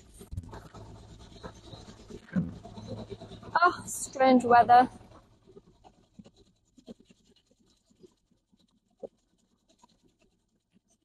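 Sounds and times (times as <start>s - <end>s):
faint scratches: 0.0s - 11.0s.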